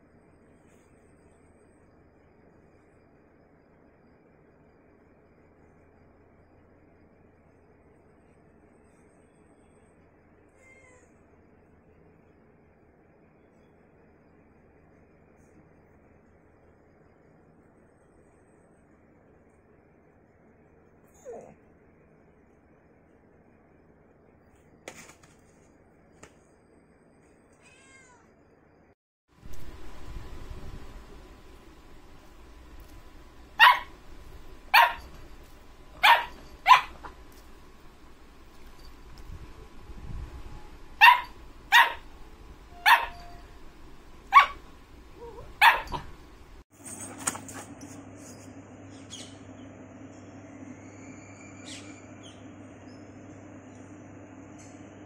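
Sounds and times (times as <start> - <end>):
cat meowing: 10.6 - 11.2, 27.6 - 28.3
puppy barking: 33.6 - 34.0, 34.7 - 35.2, 36.0 - 37.2, 41.0 - 42.1, 42.7 - 43.4, 44.3 - 46.2.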